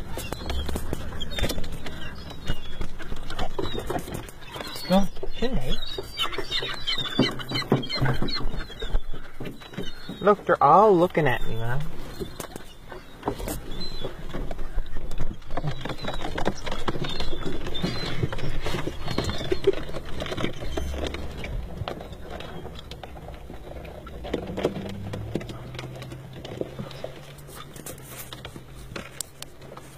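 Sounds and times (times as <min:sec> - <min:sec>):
pigeon feet tapping on car: 0:12.1 - 0:29.9.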